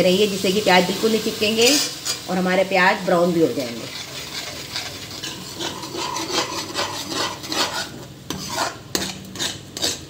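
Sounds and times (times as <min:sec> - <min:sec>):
metal ladle scraping pan: 0:01.6 - 0:02.3, 0:03.6 - 0:10.0.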